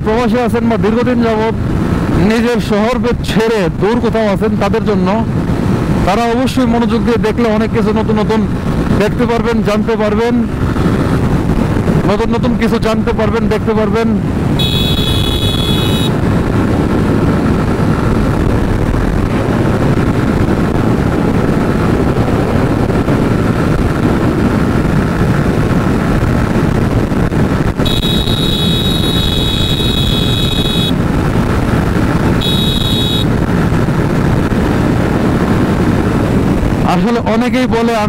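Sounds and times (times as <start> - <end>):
wind rush on microphone: 0.0 - 38.0
motorcycle engine: 14.2 - 36.8
motorcycle electric horn: 14.6 - 16.2, 27.8 - 31.0, 32.4 - 33.3.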